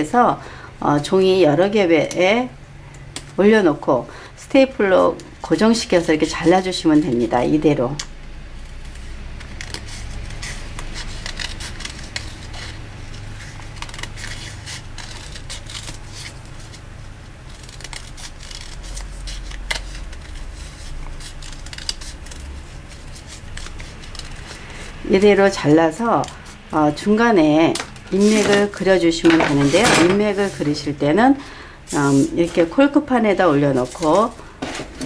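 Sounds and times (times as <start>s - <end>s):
scissors snipping paper: 8.8s - 16.8s, 17.5s - 26.6s, 27.6s - 30.8s.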